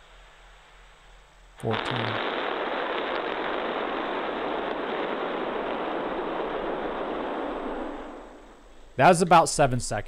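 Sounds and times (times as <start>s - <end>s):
rocket engines firing: 1.6s - 8.7s.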